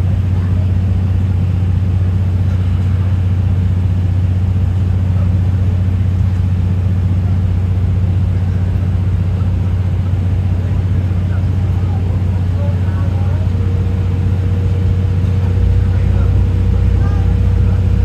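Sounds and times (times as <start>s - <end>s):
low drone inside train coach: 0.0s - 18.0s.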